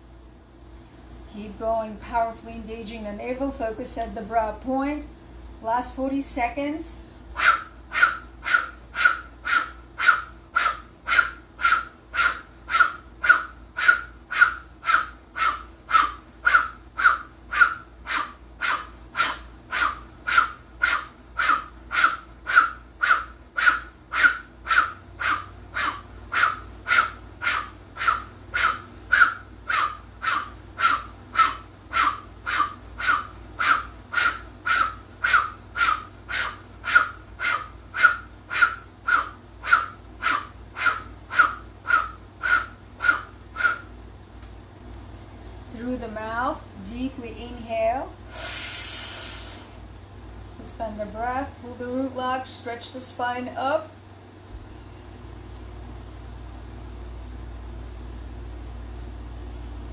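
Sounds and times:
rapid forceful breathing: 7.1 - 43.9, 48.2 - 49.8.

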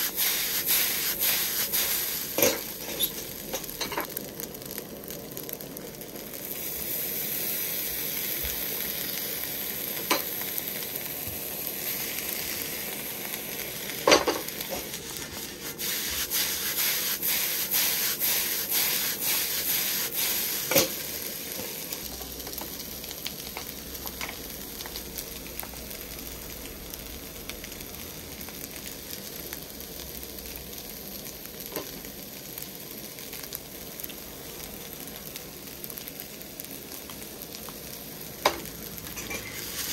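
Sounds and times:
metal ladle scraping a pan: 0.0 - 4.1, 39.2 - 39.9
rice sizzling in a wok: 0.0 - 39.9.

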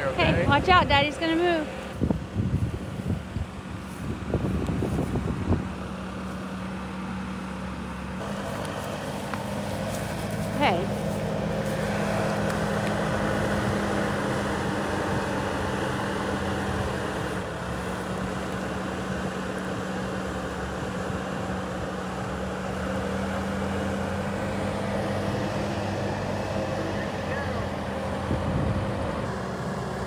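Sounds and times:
farm machine engine running: 0.0 - 30.0.

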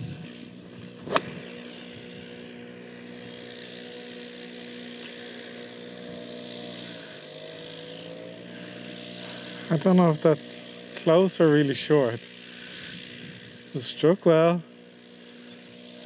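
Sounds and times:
steady engine drone: 0.0 - 16.0
golf club striking ball: 0.7 - 2.0.

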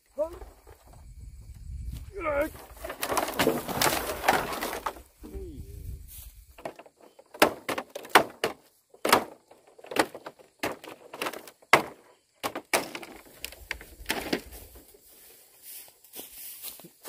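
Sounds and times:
bamboo slats cracking: 2.4 - 5.4, 6.5 - 14.7.

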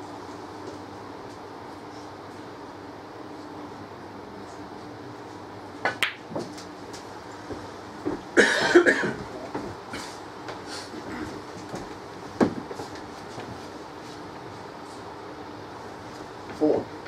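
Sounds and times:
low room hum: 0.0 - 17.0
person coughing: 8.4 - 9.2.

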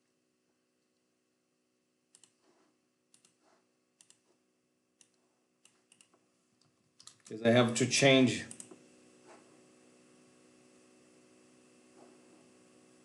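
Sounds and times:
faint computer mouse clicks: 2.1 - 2.4, 3.1 - 3.4, 5.0 - 6.2.

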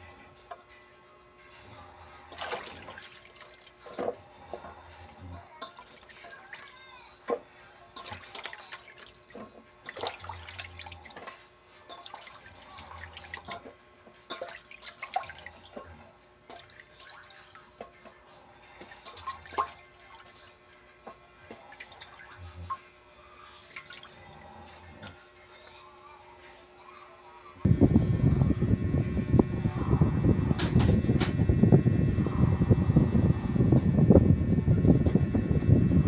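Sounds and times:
water splashing and dripping: 8.0 - 11.3.

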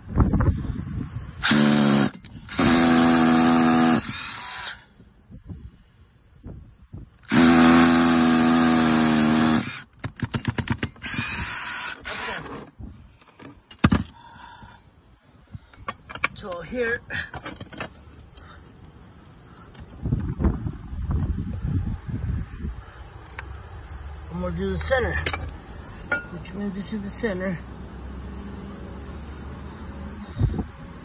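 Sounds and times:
cordless drill running: 1.4 - 4.9, 7.3 - 9.8, 11.0 - 12.6.

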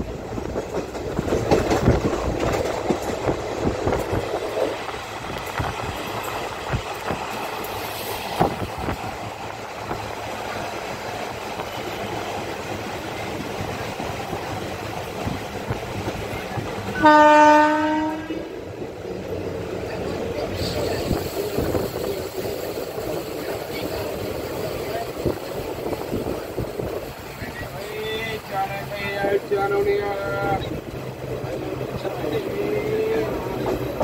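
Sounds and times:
train rumbling on track: 0.0 - 34.0
train horn: 16.9 - 18.5.

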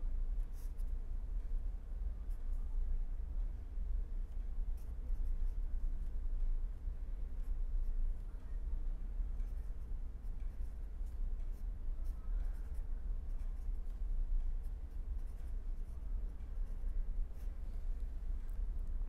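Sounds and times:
steady low hum: 0.0 - 19.0
pen scratching on paper: 0.5 - 0.9, 9.4 - 14.0, 14.6 - 17.6.

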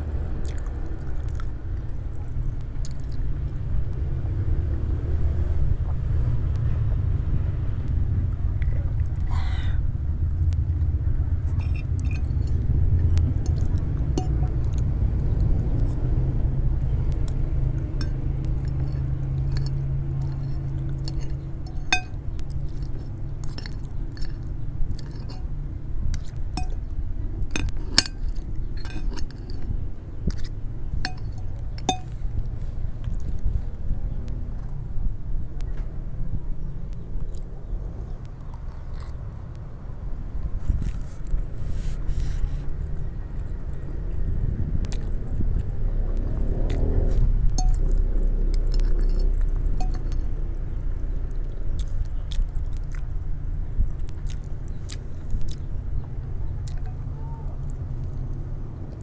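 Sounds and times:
steady low rumble: 0.0 - 59.0
cutlery clinking on glass plate: 21.1 - 22.2, 31.1 - 32.1, 49.8 - 50.2.

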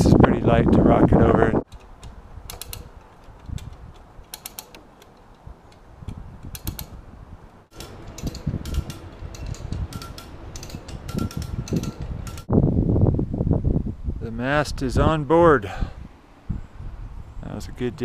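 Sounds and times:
ratchet clicking: 1.7 - 5.8, 6.5 - 7.0, 7.7 - 12.5
creaking: 1.7 - 12.5.

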